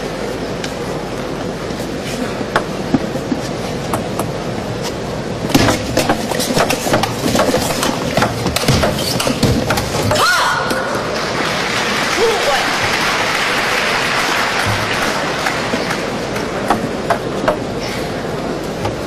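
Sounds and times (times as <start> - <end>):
arena crowd hum: 0.0 - 19.0.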